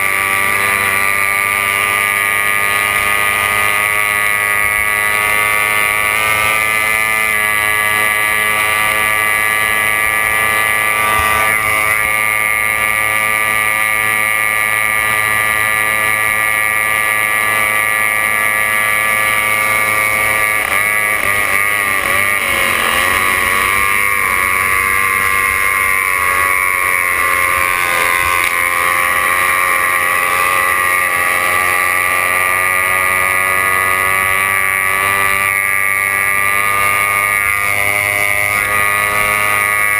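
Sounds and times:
boat engine at high revs: 0:00.0 - 0:39.9.

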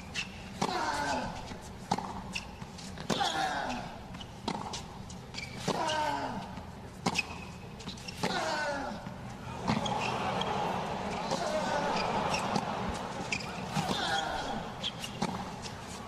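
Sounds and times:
tennis ball bouncing: 0:01.8 - 0:16.0
racket striking tennis ball: 0:11.2 - 0:15.9.

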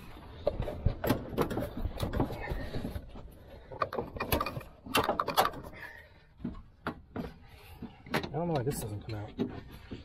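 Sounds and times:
plastic trim clicking and rattling: 0:03.8 - 0:05.8.

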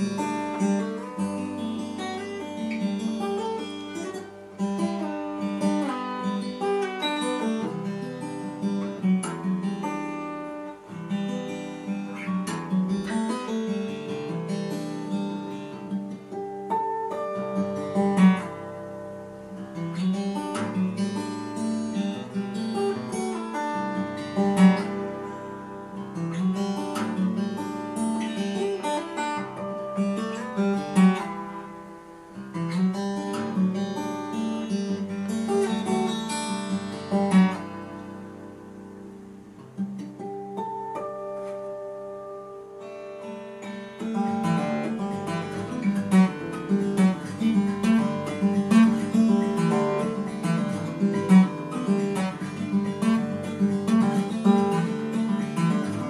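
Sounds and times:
acoustic guitar playing: 0:00.0 - 0:56.0.

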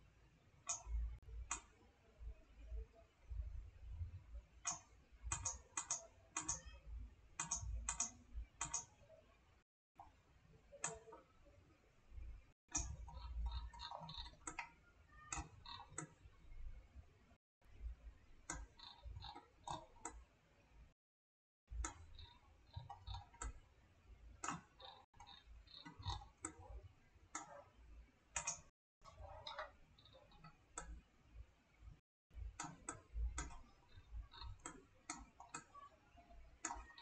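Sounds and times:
computer mouse clicking: 0:00.6 - 0:01.8, 0:04.6 - 0:06.8, 0:07.4 - 0:09.1, 0:10.7 - 0:11.2, 0:12.7 - 0:16.3, 0:18.4 - 0:20.3, 0:21.8 - 0:23.6, 0:24.4 - 0:31.0, 0:32.5 - 0:37.0.

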